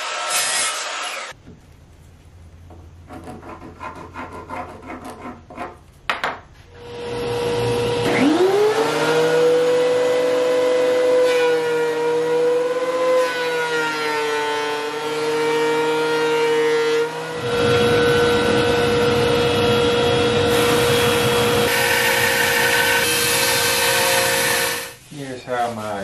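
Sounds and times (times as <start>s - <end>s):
power tool motor whine: 0.0s - 1.4s, 6.8s - 11.7s, 17.1s - 25.0s.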